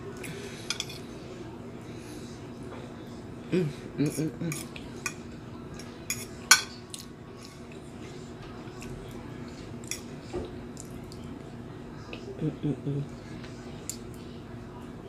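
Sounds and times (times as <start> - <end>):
person humming mm: 3.5 - 4.5, 12.1 - 13.2.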